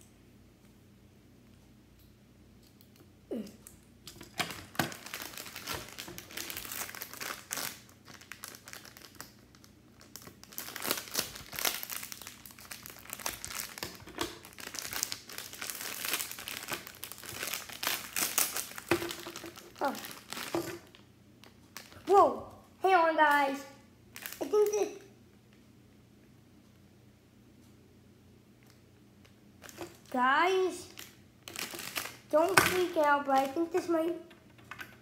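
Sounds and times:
plastic wrapper crinkling: 0:04.1 - 0:22.2, 0:24.1 - 0:24.9, 0:28.7 - 0:30.2, 0:30.8 - 0:34.1.

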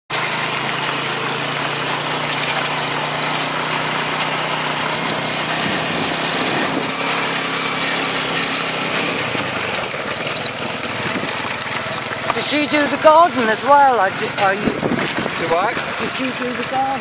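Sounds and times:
small scooter engine running: 0:00.1 - 0:17.0.

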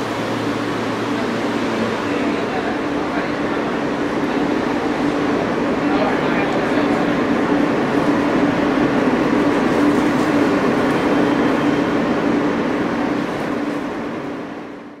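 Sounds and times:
subway car hum and rush: 0:00.0 - 0:15.0.

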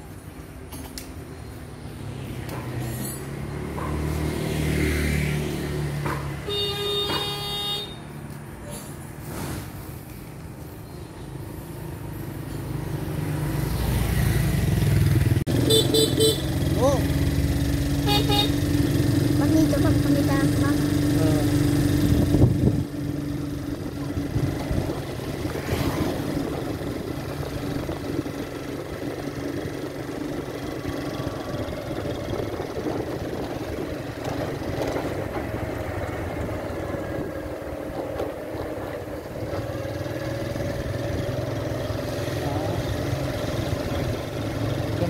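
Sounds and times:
small motorbike engine running: 0:13.7 - 0:35.8.

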